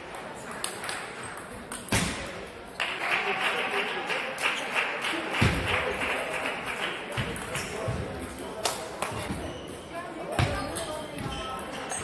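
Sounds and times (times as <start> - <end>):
spectators clapping: 2.7 - 7.7.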